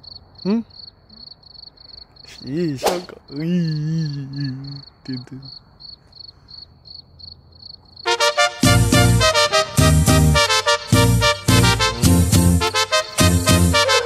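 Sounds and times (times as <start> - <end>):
cricket chirping: 0.0 - 8.2
long drawn-out voiced sound: 2.3 - 5.5
person exclaiming: 2.3 - 5.5
music: 8.1 - 14.0.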